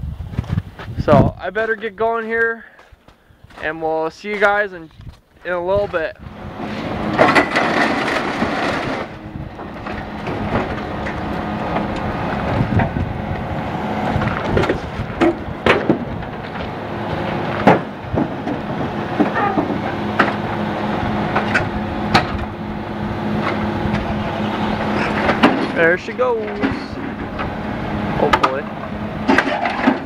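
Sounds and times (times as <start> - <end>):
machine engine running: 5.9 - 30.0
metal clanks and scrapes: 6.6 - 12.1, 23.4 - 27.6, 28.2 - 30.0.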